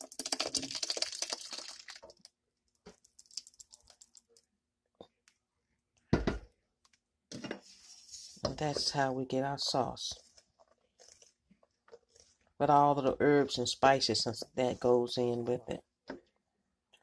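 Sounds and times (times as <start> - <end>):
sauce pouring and splattering into pot: 0.0 - 4.5.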